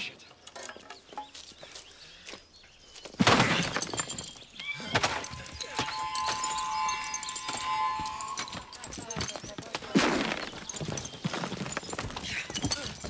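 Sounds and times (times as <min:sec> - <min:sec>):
breaking debris: 0:03.2 - 0:05.9
stone urn smashing: 0:03.2 - 0:07.7
steady ringing tone: 0:05.3 - 0:09.4.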